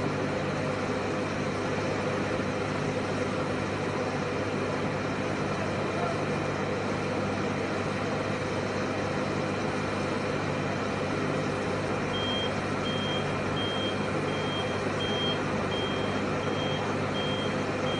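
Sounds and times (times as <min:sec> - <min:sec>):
engine drone: 0:00.0 - 0:17.9
reversing alarm beeping: 0:12.1 - 0:17.9.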